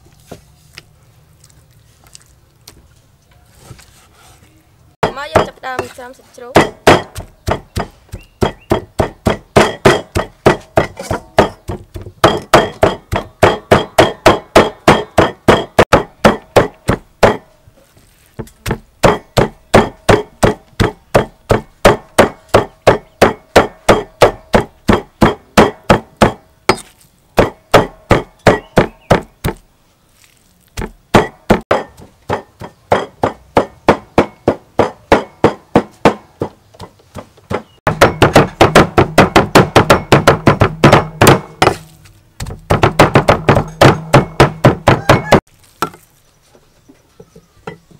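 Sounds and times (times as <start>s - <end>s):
cleaver chopping on wooden board: 6.6s - 17.5s, 18.4s - 29.6s, 30.8s - 46.0s.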